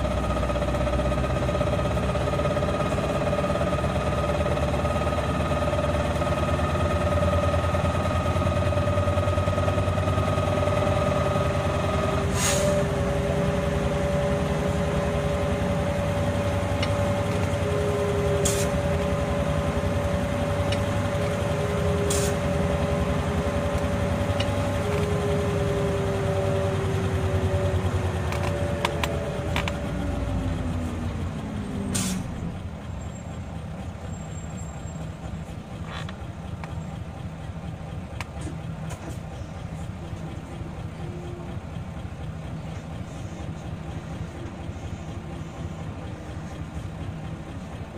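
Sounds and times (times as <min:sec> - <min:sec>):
bus engine drone: 0:00.0 - 0:47.9
drivetrain whine: 0:00.0 - 0:47.9.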